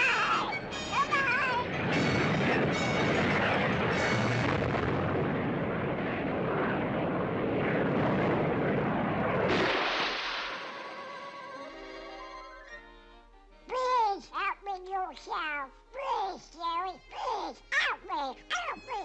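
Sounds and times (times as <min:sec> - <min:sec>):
cartoon rocket whoosh: 0:09.2 - 0:11.8
water splash: 0:09.5 - 0:11.0.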